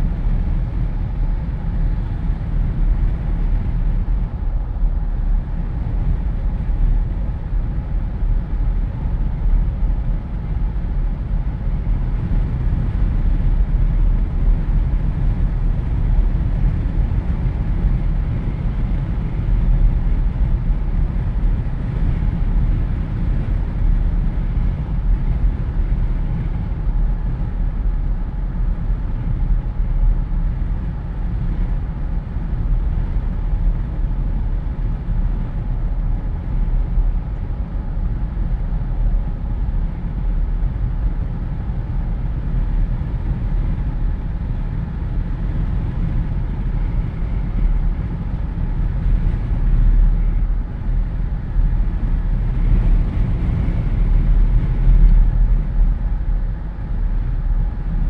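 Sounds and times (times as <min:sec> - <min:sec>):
road noise: 0:00.0 - 0:58.0.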